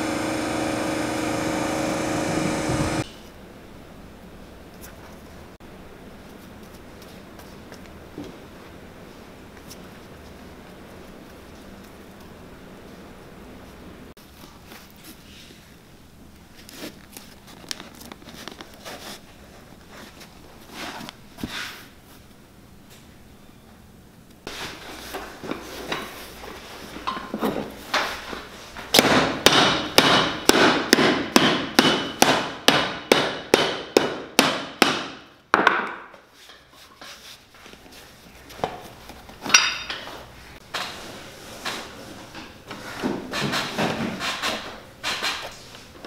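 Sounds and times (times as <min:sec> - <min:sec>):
hammer striking leather: 0:28.9 - 0:35.9.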